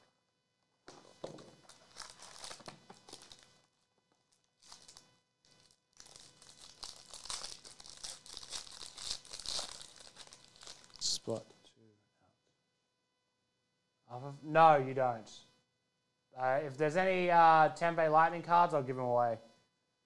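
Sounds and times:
foil wrapper crinkling and tearing: 1.4s - 11.1s.

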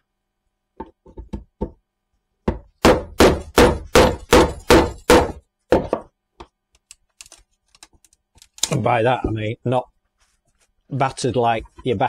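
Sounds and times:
hammer striking wood: 2.5s - 6.1s.

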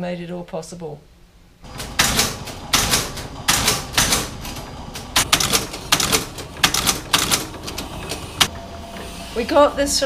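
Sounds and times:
embossing machine clacking: 1.7s - 9.1s.

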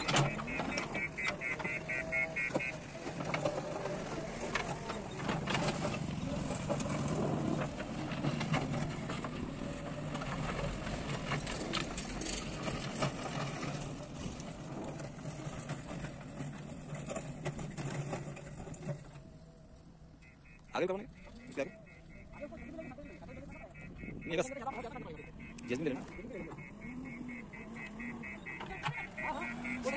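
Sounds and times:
digger diesel engine running: 0.0s - 19.6s, 20.2s - 29.9s.

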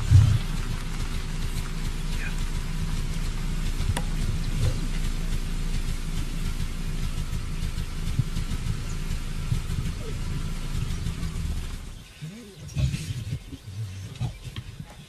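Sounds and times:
vehicle engine idling: 0.0s - 15.0s.

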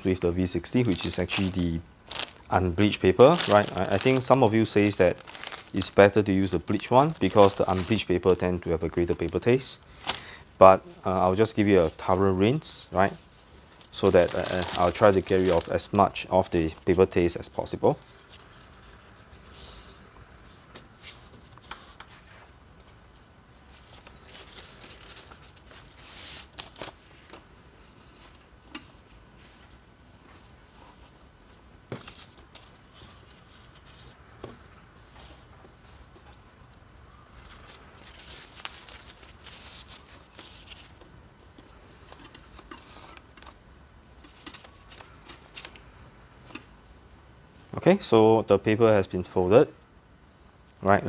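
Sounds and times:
paper rustling and creasing: 0.1s - 10.3s, 13.0s - 22.6s, 23.7s - 27.4s, 37.4s - 43.6s, 44.2s - 45.8s.

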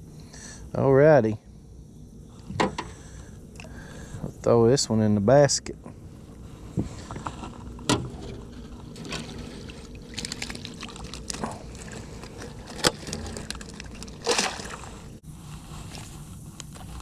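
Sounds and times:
water sloshing and dripping: 8.1s - 15.2s.

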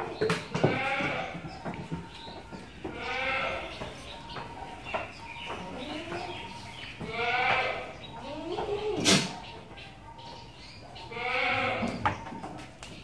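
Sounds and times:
goats bleating: 0.6s - 1.4s, 2.9s - 3.8s, 5.6s - 9.3s, 11.1s - 12.0s.

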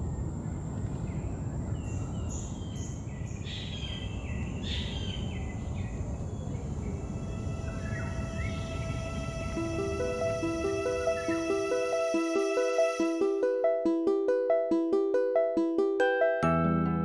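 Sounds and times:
bird chirping: 0.0s - 9.5s
low outdoor background noise: 0.0s - 11.7s.

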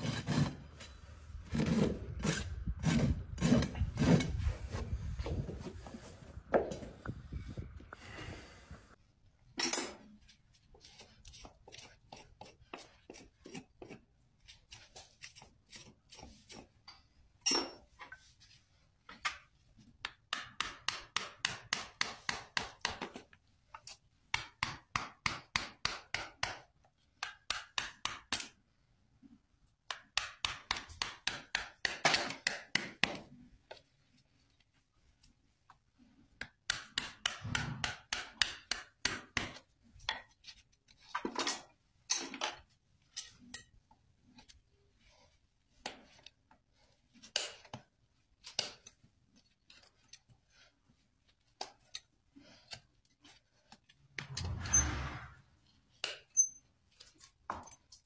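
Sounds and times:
rasp filing a hoof: 0.0s - 6.2s, 10.2s - 28.6s, 35.9s - 41.2s, 43.2s - 57.5s.

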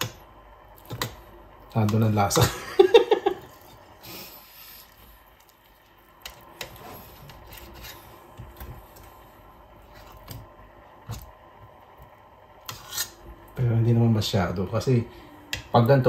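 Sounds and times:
metal spoon scraping a pot: 6.2s - 8.2s, 12.6s - 13.2s.

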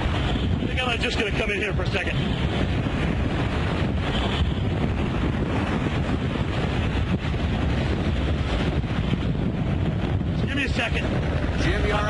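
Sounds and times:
driving rain: 0.0s - 12.0s
strong wind buffeting microphone: 0.0s - 12.0s.

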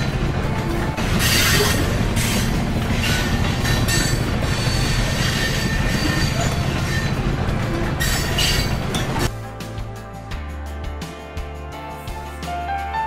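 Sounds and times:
high wheel squealing: 0.0s - 9.3s
train wheels rumbling on rails: 0.0s - 9.3s.

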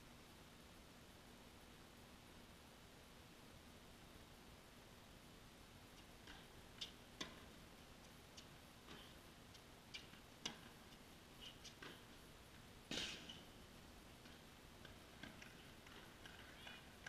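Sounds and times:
tennis ball hitting racket and court: 6.2s - 7.6s, 9.9s - 12.2s, 12.9s - 13.5s, 14.2s - 16.8s.

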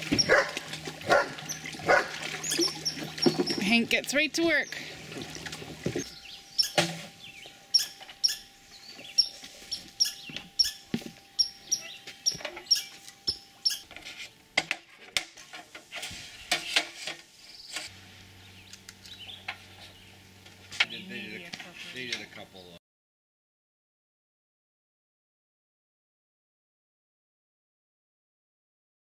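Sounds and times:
small animal chirping: 6.2s - 6.8s, 7.7s - 8.5s, 9.1s - 13.9s.

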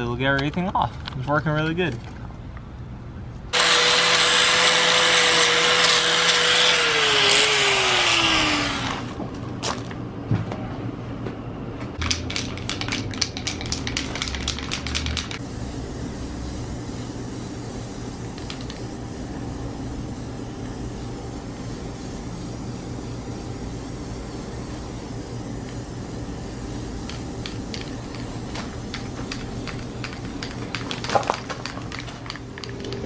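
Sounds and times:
angle grinder whine: 3.6s - 9.2s
spray can rattling: 12.0s - 15.4s, 17.4s - 19.0s, 26.4s - 33.0s
spray paint hissing: 12.1s - 32.9s.

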